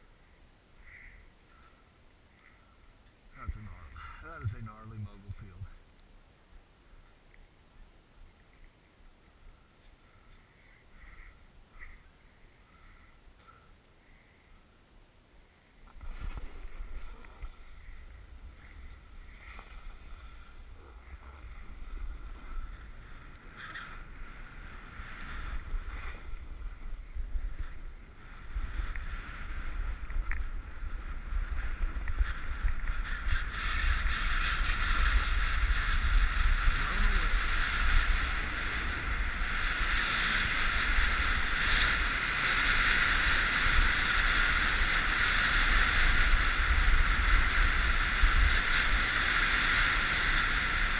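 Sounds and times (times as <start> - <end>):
snowboard scraping over snow: 16.0 - 50.9.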